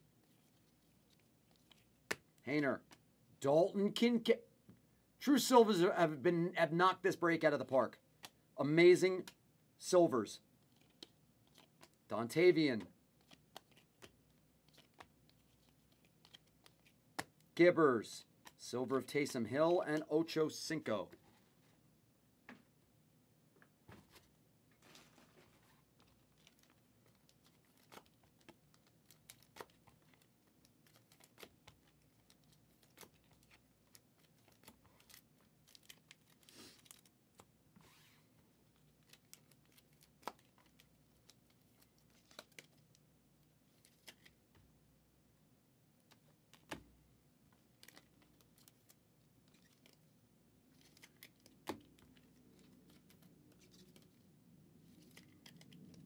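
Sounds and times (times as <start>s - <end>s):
handling of trading cards: 0.1s - 3.1s, 10.5s - 17.6s, 18.2s - 21.9s, 23.6s - 44.8s, 46.0s - 56.0s
plastic wrappers crinkling and tearing: 25.9s - 37.4s, 38.7s - 43.0s.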